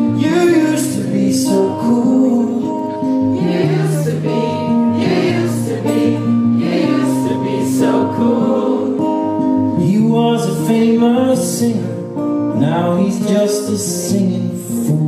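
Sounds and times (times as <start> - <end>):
acoustic guitars strummed: 0.0 - 15.0
person singing: 0.2 - 12.0.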